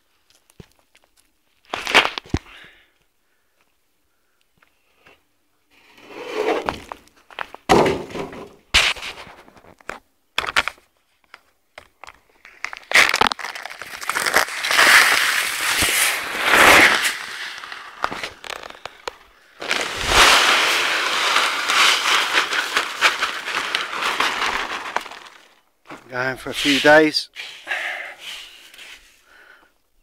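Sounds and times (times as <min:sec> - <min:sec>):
sack rustling: 0:12.9 - 0:27.0
feed pouring into metal drum: 0:19.6 - 0:25.5.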